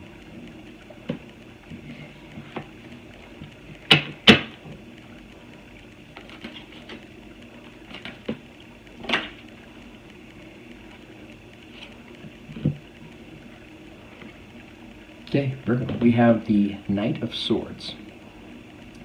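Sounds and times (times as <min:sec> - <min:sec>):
low hum: 0:00.0 - 0:19.0
cards rustling and clicking: 0:06.2 - 0:07.1, 0:07.9 - 0:08.4.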